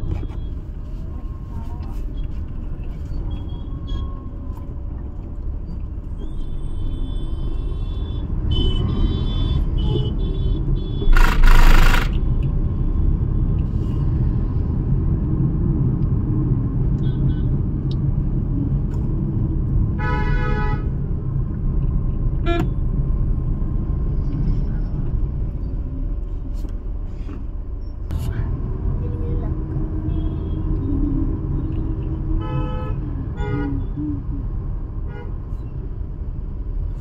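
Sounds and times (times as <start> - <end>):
engine and road rumble: 0.0 - 37.0
car horns honking: 7.8 - 12.2, 22.4 - 22.8.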